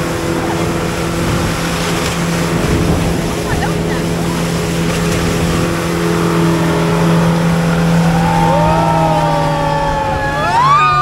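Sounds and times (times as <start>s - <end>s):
wind and spray rushing: 0.0s - 8.0s
outboard motor running: 0.0s - 11.0s.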